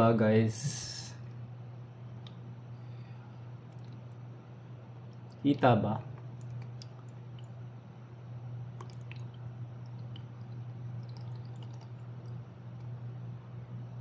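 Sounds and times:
steady low hum: 0:00.0 - 0:14.0
water trickling into plastic tank: 0:05.1 - 0:07.6, 0:08.7 - 0:13.0.

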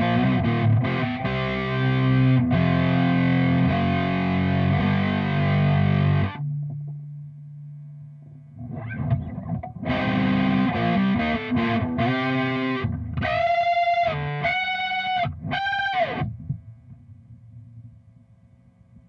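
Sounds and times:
distorted electric guitar: 0:00.0 - 0:07.0, 0:08.6 - 0:16.7
low amp hum: 0:00.0 - 0:19.0.

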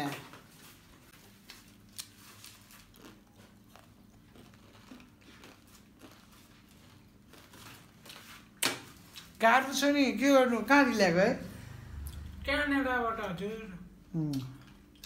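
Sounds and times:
person crunching and chewing: 0:01.4 - 0:09.4.

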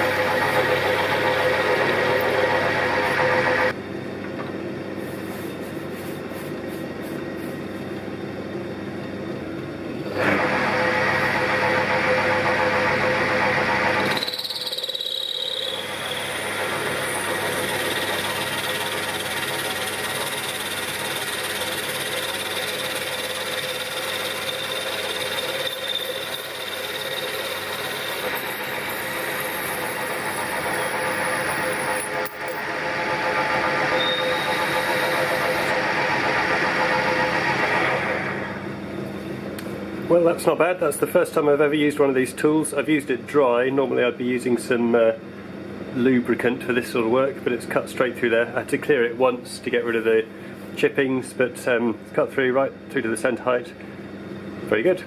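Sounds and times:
lathe whine: 0:00.0 - 0:03.8, 0:08.9 - 0:39.1
parting tool cutting aluminium: 0:14.0 - 0:32.7.

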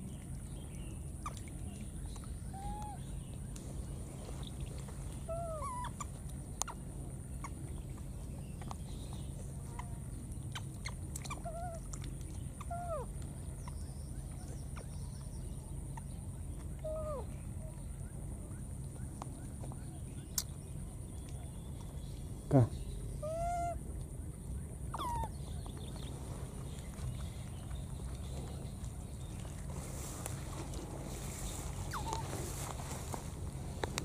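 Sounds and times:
baby macaques squeaky calls: 0:05.3 - 0:06.1, 0:23.2 - 0:23.8, 0:24.9 - 0:25.3, 0:31.8 - 0:32.3.

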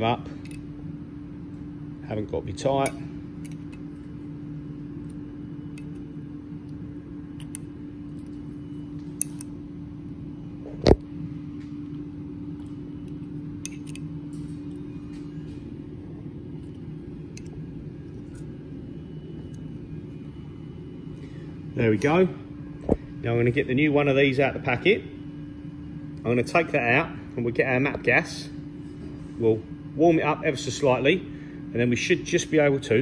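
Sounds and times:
low machine hum: 0:00.0 - 0:33.0
hex key metallic clicks: 0:13.6 - 0:14.5.

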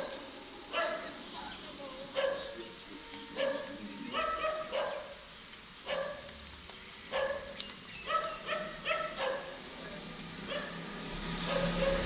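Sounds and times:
dog barking: 0:00.0 - 0:01.2, 0:02.1 - 0:02.6, 0:03.4 - 0:06.4, 0:07.1 - 0:09.6, 0:10.5 - 0:12.0.

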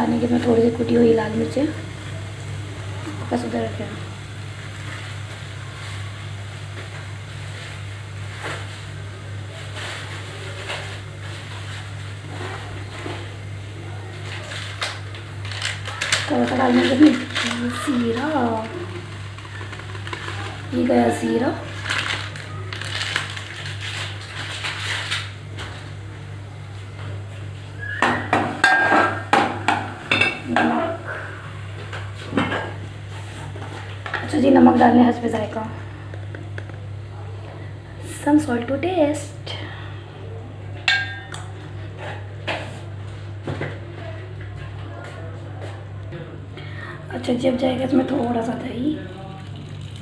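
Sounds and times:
hot oil sizzling: 0:00.0 - 0:26.5, 0:27.6 - 0:37.1, 0:47.3 - 0:50.0
crackles: 0:01.9 - 0:27.0.

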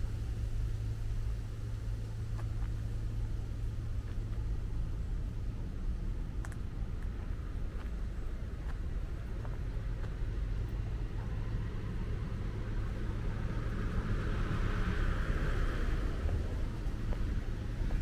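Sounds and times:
steady low rumble: 0:00.0 - 0:18.0
vehicle passing: 0:09.1 - 0:18.0.

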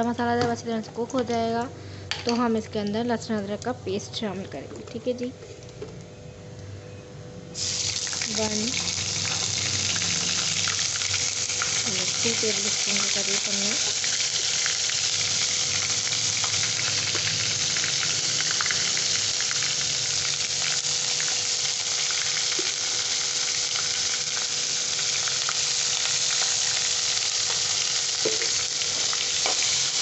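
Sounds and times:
paste sizzling in hot oil: 0:07.6 - 0:30.0.

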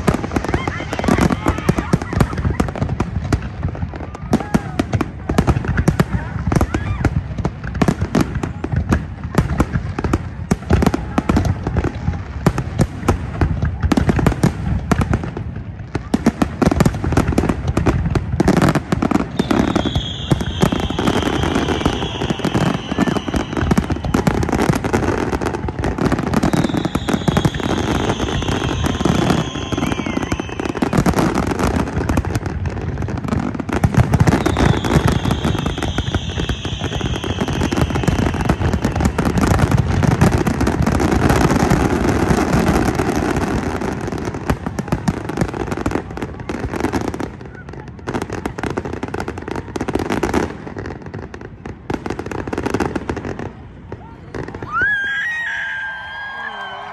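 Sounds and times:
firework bursts and crackling: 0:00.0 - 0:56.9
falling firework whistles: 0:18.5 - 0:32.2, 0:33.9 - 0:40.2.

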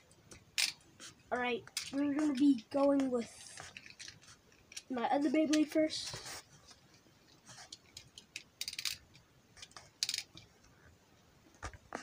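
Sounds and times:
small plastic clicks: 0:07.7 - 0:10.5.

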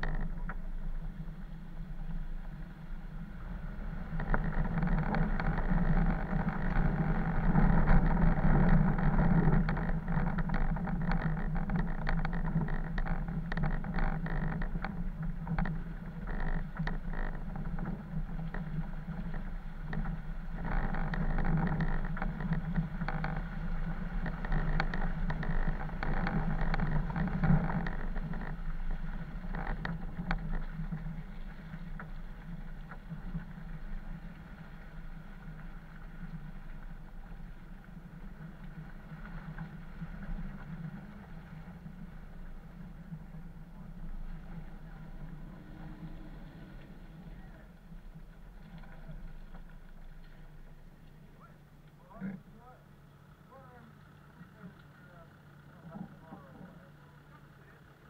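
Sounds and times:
small clicks and knocks: 0:00.0 - 0:00.9, 0:04.1 - 0:34.9
vehicle engine drone: 0:00.0 - 0:58.0.

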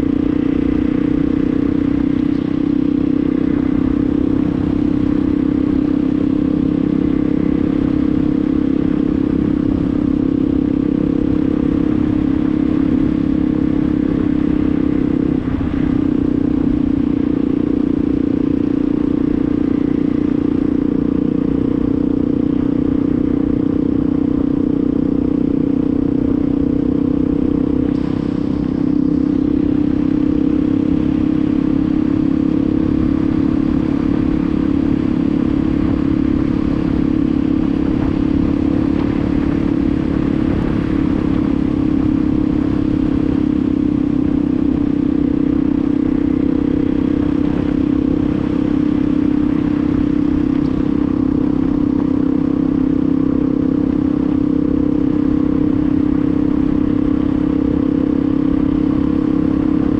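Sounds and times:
motorcycle engine running: 0:00.0 - 0:59.9
wind and road noise: 0:00.0 - 0:59.9.

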